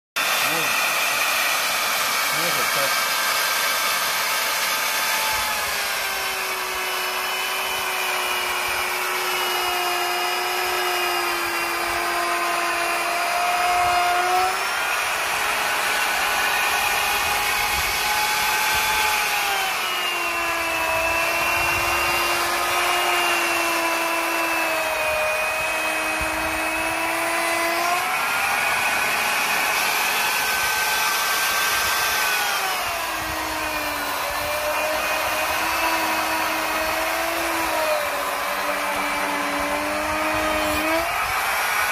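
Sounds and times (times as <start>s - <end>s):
router bit cutting wood: 0.2s - 41.9s
router motor whine: 0.2s - 41.9s.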